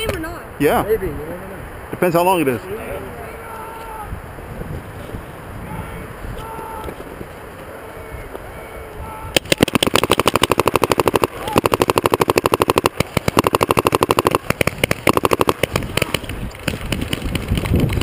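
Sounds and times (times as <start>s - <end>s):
paintball markers firing: 9.4s - 18.0s.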